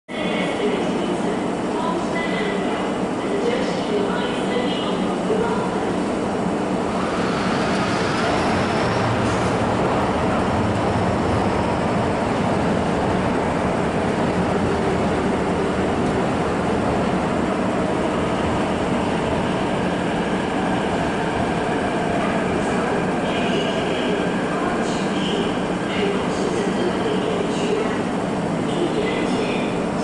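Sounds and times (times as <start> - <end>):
train wheels and motors rumbling: 5.9 - 28.7.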